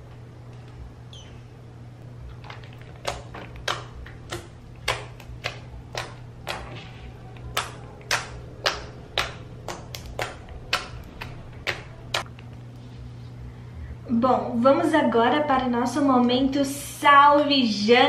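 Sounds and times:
slime wet clicks and pops: 0:03.0 - 0:06.8, 0:07.4 - 0:12.3.

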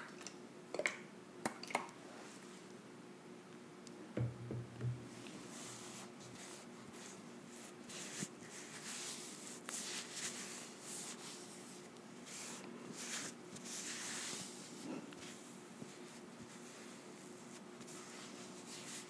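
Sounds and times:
cotton pad rubbing on skin: 0:05.4 - 0:19.0.

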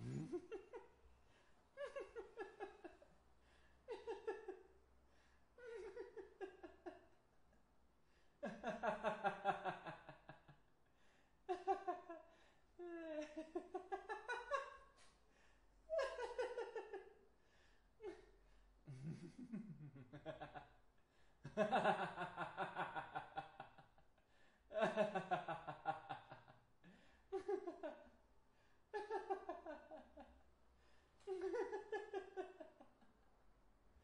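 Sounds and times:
man laughing: 0:00.0 - 0:00.8, 0:12.8 - 0:14.6, 0:31.2 - 0:32.8.

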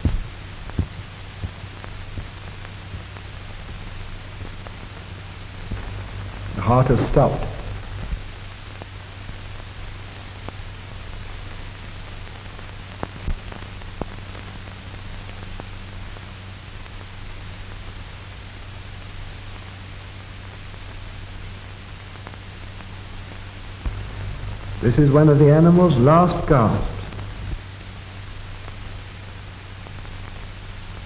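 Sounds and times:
film soundtrack hiss: 0:00.0 - 0:31.0
low hum: 0:03.3 - 0:09.8, 0:23.4 - 0:29.4.

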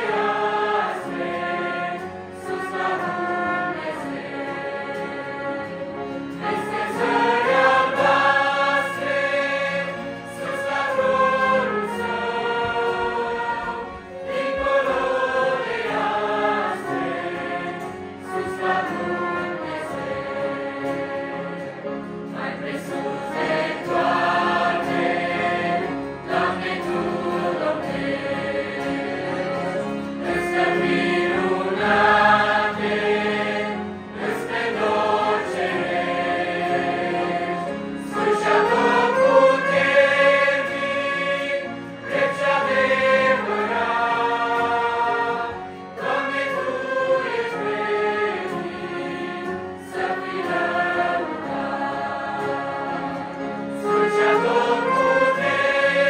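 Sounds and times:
accordion: 0:00.0 - 0:56.0
choir singing a hymn: 0:00.0 - 0:56.0
violin: 0:00.0 - 0:56.0
trumpet: 0:00.1 - 0:20.7, 0:37.9 - 0:48.6, 0:53.7 - 0:56.0.

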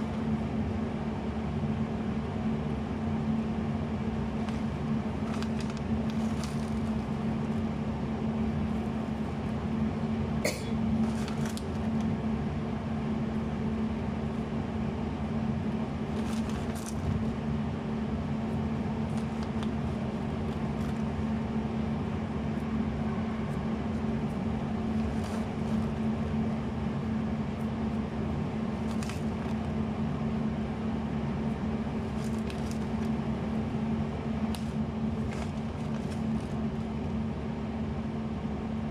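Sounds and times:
low machine hum: 0:00.0 - 0:38.9
plastic bag crinkling: 0:04.5 - 0:07.2, 0:11.0 - 0:11.9, 0:16.2 - 0:17.2, 0:28.8 - 0:29.7, 0:32.1 - 0:33.1, 0:34.6 - 0:36.6.

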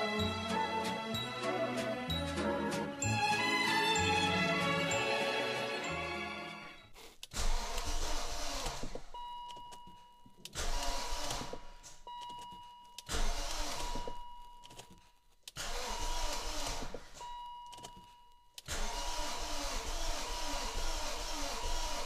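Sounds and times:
engine cranking on starter: 0:07.2 - 0:09.2, 0:10.5 - 0:12.0, 0:13.1 - 0:14.3, 0:15.5 - 0:17.3, 0:18.6 - 0:22.0.

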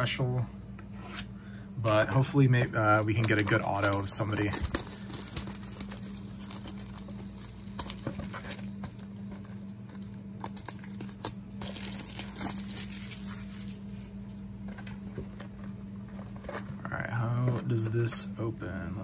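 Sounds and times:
shrink wrap tearing and crinkling: 0:02.7 - 0:14.4.

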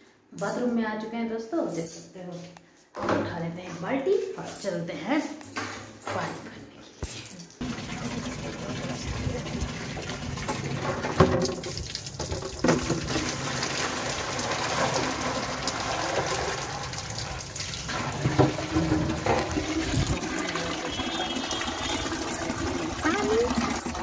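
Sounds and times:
metal knocking on bucket: 0:07.6 - 0:17.0, 0:17.9 - 0:24.0
tap water into bucket: 0:07.6 - 0:24.0.

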